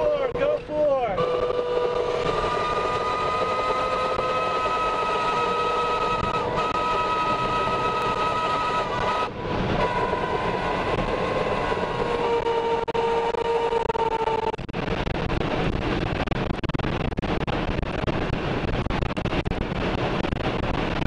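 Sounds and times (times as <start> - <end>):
roar of wind and rain: 0.0 - 21.0
steady high whistle: 1.2 - 10.0.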